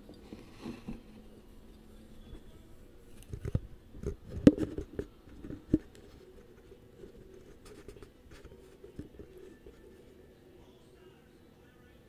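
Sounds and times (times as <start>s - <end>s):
faint steady background noise: 0.0s - 12.0s
knocks and rubs on camera: 3.3s - 9.9s.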